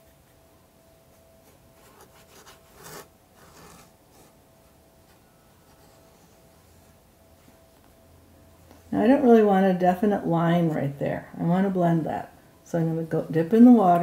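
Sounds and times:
brush scratching on paper: 1.4s - 4.4s.

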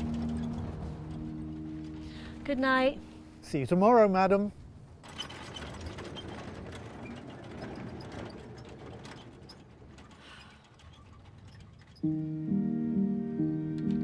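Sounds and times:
faint mechanical clicking and rattling: 4.8s - 12.0s
background music with held chords: 12.0s - 14.0s.

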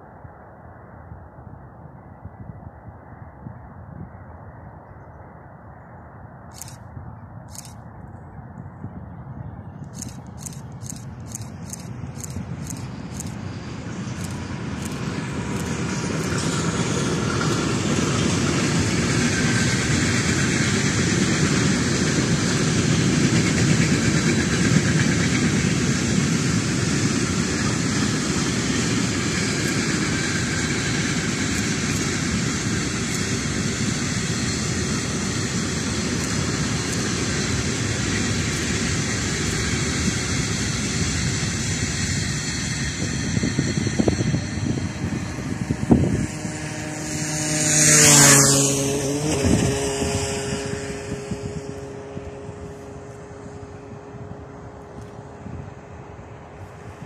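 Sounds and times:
train wheels rumbling on rails: 9.7s - 57.0s.

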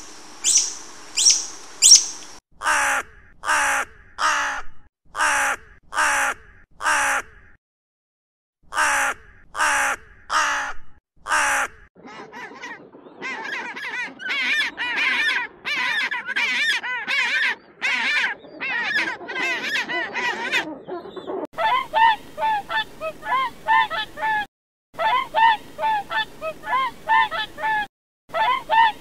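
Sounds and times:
honking calls: 0.0s - 2.4s
crow cawing: 0.0s - 4.6s, 5.2s - 7.5s, 8.7s - 11.7s.

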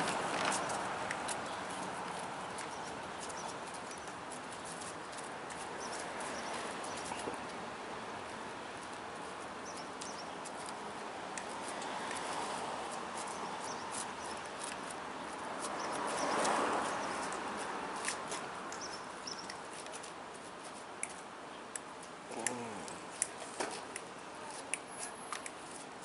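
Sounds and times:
light clicks and scuffs: 0.0s - 22.2s, 22.9s - 26.0s
vehicle passing: 15.4s - 18.6s.

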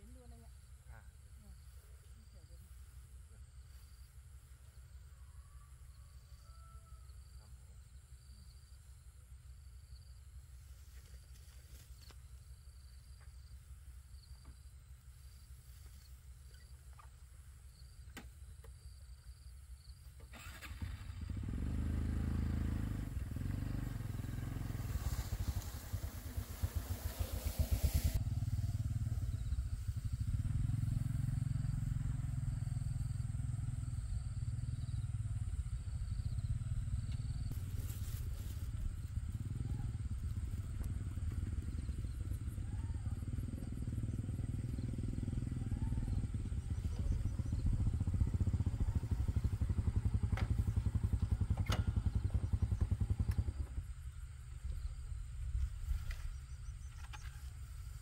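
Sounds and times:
small engine chugging: 15.2s - 58.0s
hiss of noise: 23.0s - 30.3s.

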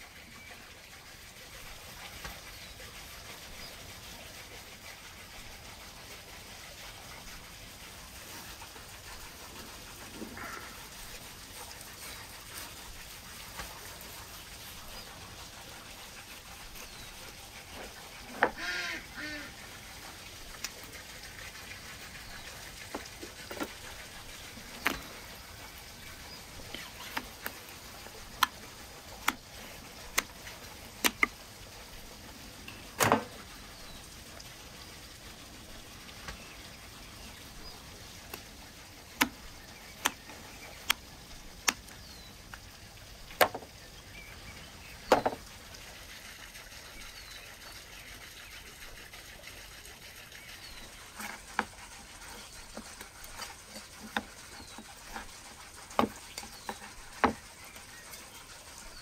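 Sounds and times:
faint birds chirping: 8.4s - 59.0s
cleaver knocking on bone and wood: 56.0s - 56.2s, 57.2s - 57.4s.

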